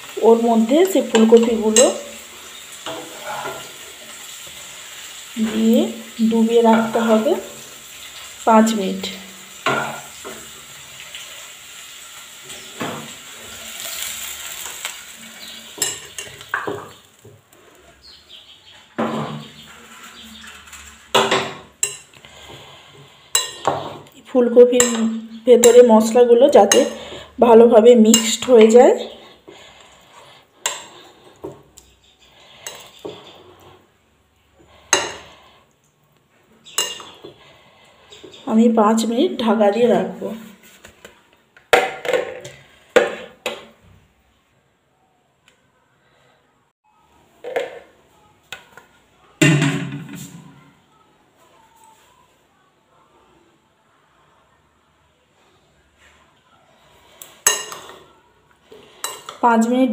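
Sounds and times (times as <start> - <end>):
spoon and pan clinking on bowl: 15.8 - 16.9, 23.3 - 24.0, 24.7 - 25.9, 36.7 - 37.3, 57.4 - 58.0, 59.0 - 59.4
spoon clinking against bowl: 36.7 - 37.2.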